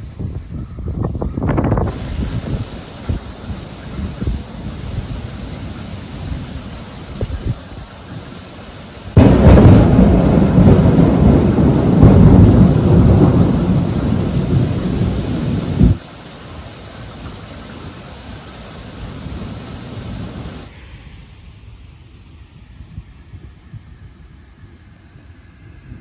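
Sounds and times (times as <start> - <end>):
heavy rain hiss: 0.0 - 22.2
thunderclap rumbling: 1.0 - 20.7.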